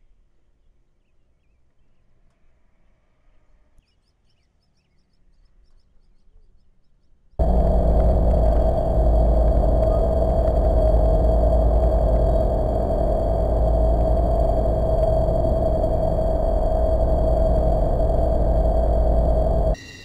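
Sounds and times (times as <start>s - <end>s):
diesel locomotives droning: 7.4s - 19.8s.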